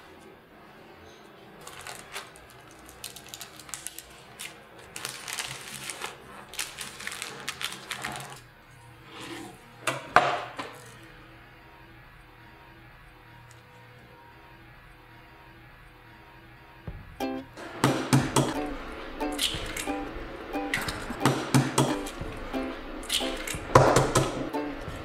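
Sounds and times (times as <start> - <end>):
parchment paper crinkling: 1.6 - 8.9.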